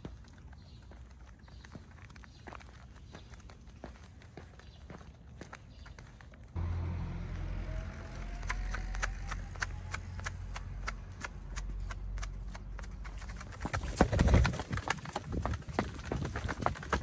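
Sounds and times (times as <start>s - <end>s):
low steady rumble: 6.6s - 12.4s.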